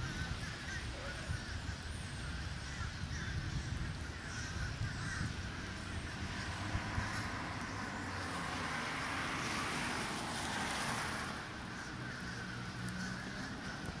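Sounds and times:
vehicle passing: 5.6s - 14.0s.

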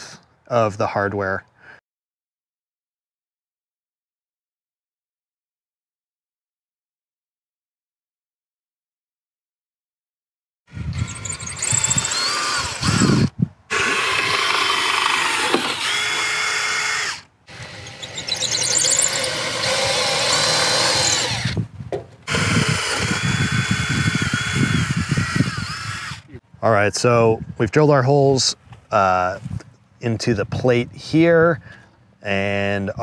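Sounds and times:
cordless drill drilling metal: 10.7s - 21.6s, 22.2s - 26.3s.

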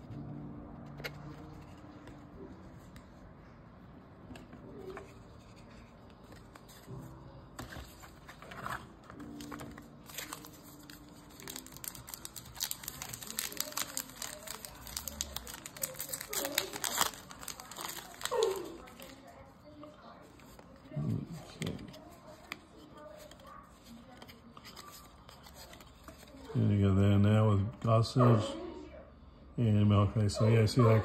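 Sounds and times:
wrapper tearing and crinkling: 9.4s - 19.2s.

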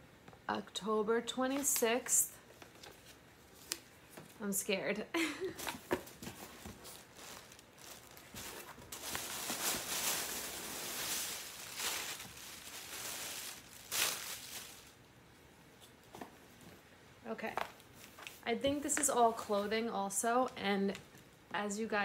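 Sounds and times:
packaging and clothing rustling: 5.4s - 15.0s.

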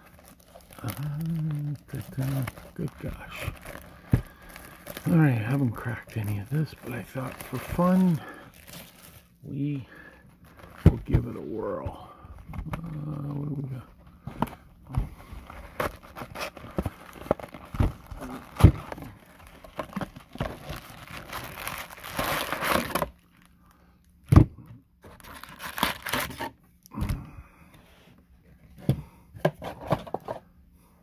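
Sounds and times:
foil packs crinkling: 0.0s - 11.9s, 15.2s - 23.8s, 25.1s - 26.5s
cardboard box tearing: 19.7s - 23.1s, 25.2s - 26.5s.

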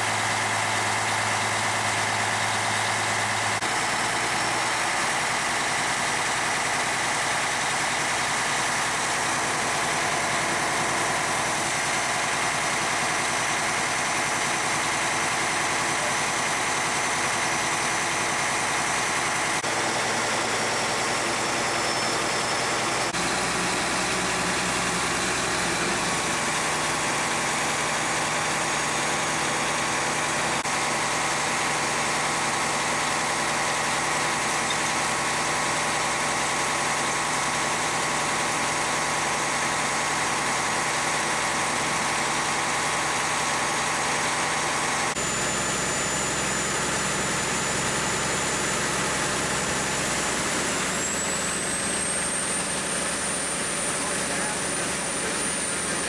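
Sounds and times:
engine-driven pump running: 0.0s - 56.0s.

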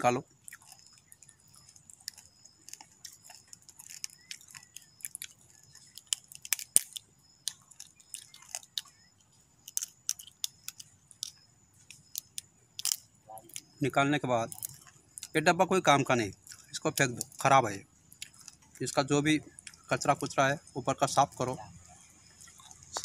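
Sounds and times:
crab shell cracking: 0.3s - 13.8s, 14.5s - 15.4s, 16.4s - 20.0s.

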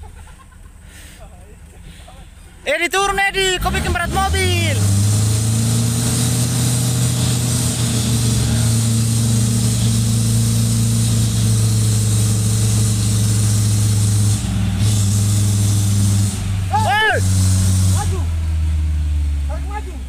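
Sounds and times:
vehicle engine running steadily: 0.0s - 20.0s.

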